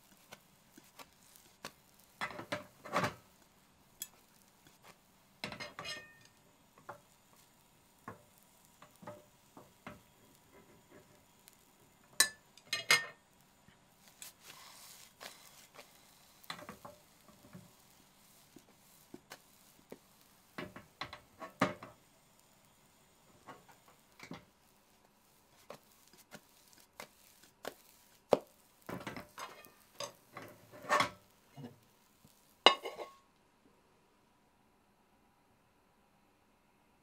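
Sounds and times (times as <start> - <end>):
frying pan knocking on burner: 0.3 - 3.3, 4.0 - 13.2, 15.7 - 17.8, 19.2 - 22.0, 27.0 - 31.2, 32.6 - 33.2
pan rim clinking on plate: 32.7 - 33.2.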